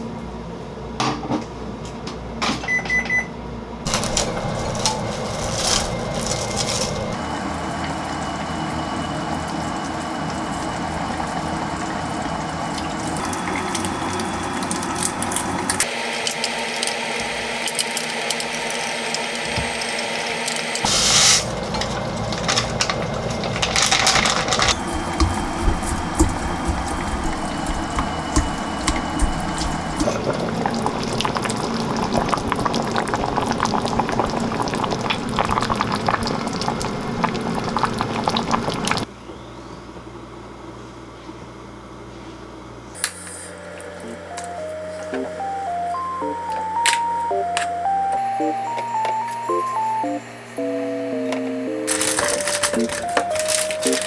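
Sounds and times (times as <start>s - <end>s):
cling film crinkling: 3.9s - 7.2s, 51.9s - 54.0s
soup bubbling in pot: 24.8s - 39.1s.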